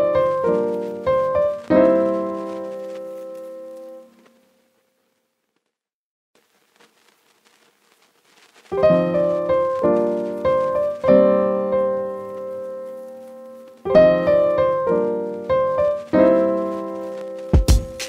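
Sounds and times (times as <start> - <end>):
slow piano music: 0.0 - 4.4, 8.8 - 18.0.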